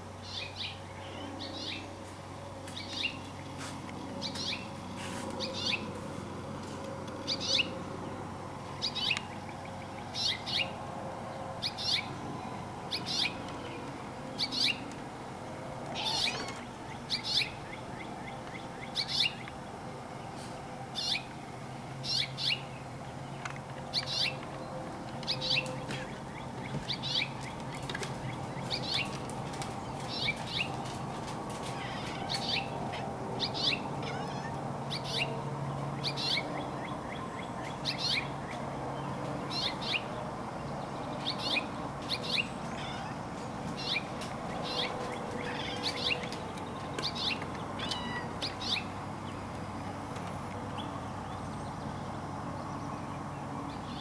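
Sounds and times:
faint steady hum: 0.0 - 31.5
bird chirping: 0.2 - 2.0, 2.7 - 3.6, 4.2 - 4.8, 5.4 - 5.9, 8.7 - 10.8, 11.6 - 14.9, 15.9 - 19.7, 21.0 - 21.3, 22.0 - 29.2, 29.8 - 30.8, 31.8 - 50.0.

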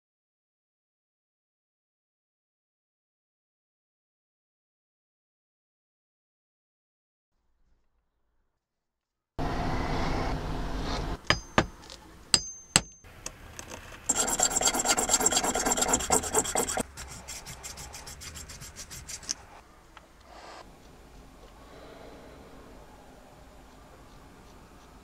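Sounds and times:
hand saw cutting resin: 14.1 - 19.4.

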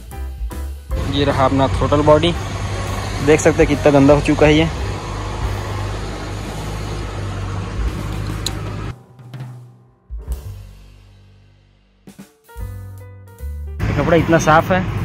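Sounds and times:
drum hit: 8.9 - 11.5.

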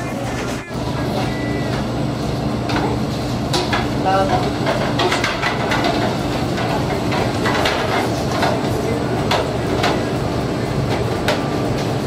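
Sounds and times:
faint voices: 0.0 - 1.9.

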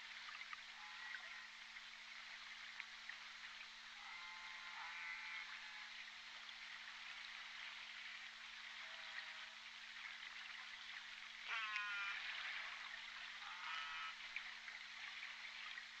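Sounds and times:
orca call: 11.5 - 12.2, 13.4 - 14.2.

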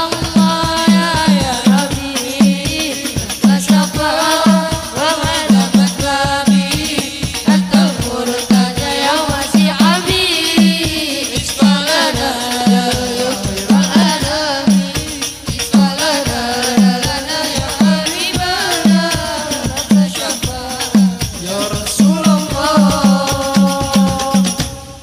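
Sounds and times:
frame drums beating: 0.0 - 25.0
voices singing long notes: 0.0 - 25.0.

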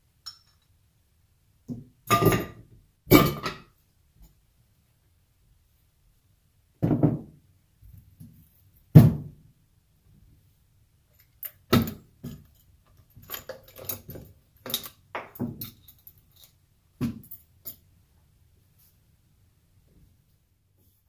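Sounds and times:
metal parts knocking and clinking: 11.1 - 17.8.

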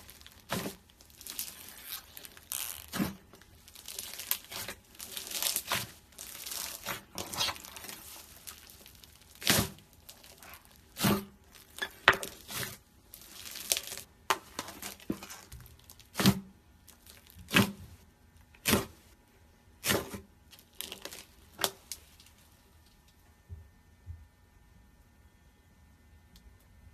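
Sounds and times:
slime crackling and popping: 0.0 - 17.8, 19.8 - 22.5.

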